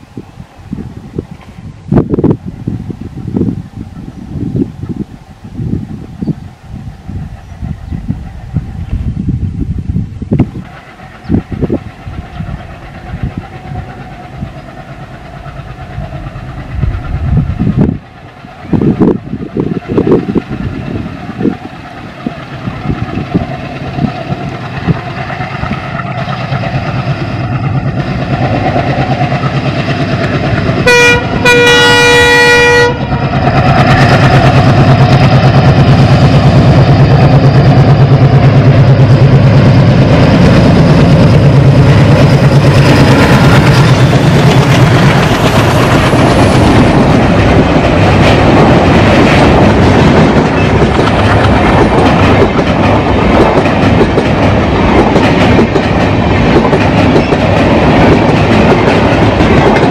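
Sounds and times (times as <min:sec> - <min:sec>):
diesel locomotive engines chugging: 0:00.0 - 0:59.9
train air horn: 0:30.8 - 0:33.2.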